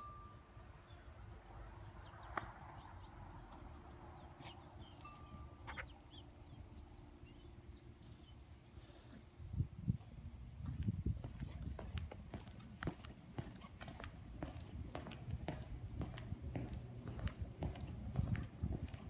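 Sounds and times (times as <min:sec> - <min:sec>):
birds chirping and whistling: 0:00.7 - 0:09.0
low steady rumble: 0:02.8 - 0:19.0.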